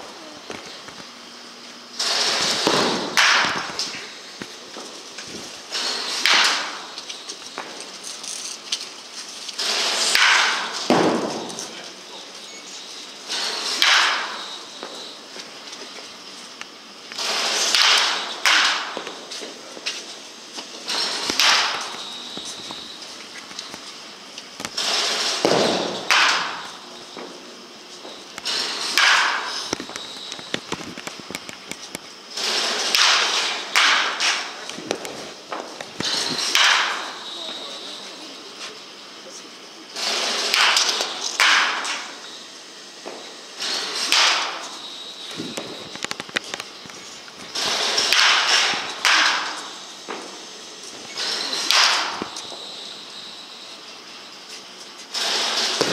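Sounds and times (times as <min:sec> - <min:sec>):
bat cracking against ball: 0:02.0 - 0:07.8, 0:09.6 - 0:11.7, 0:13.3 - 0:15.0, 0:17.2 - 0:19.2, 0:20.8 - 0:23.8, 0:24.6 - 0:27.3, 0:28.3 - 0:32.0, 0:32.6 - 0:37.2, 0:40.2 - 0:42.2, 0:43.1 - 0:44.8, 0:47.5 - 0:50.4, 0:51.6 - 0:52.7, 0:55.4 - 0:55.9.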